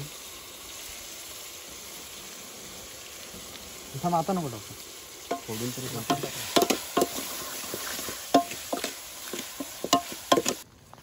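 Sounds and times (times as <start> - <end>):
vegetables sizzling in oil: 0.0 - 10.7
metal ladle scraping steel pot: 5.3 - 10.6.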